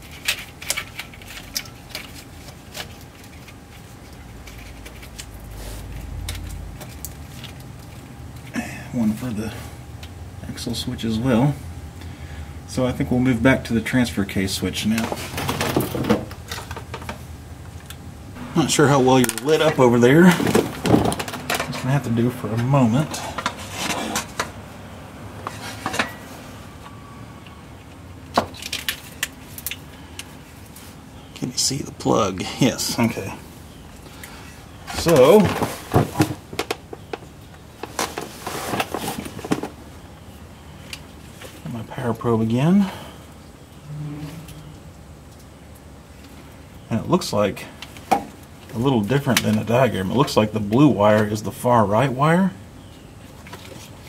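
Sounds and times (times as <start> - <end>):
low rumble: 18.2 - 21.6.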